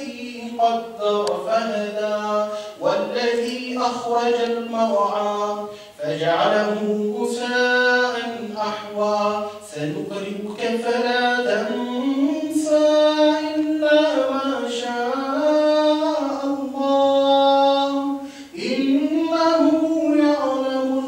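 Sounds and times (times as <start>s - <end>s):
person chanting: 0.0s - 21.0s
breath: 2.5s - 2.8s, 5.7s - 6.0s, 18.2s - 18.6s.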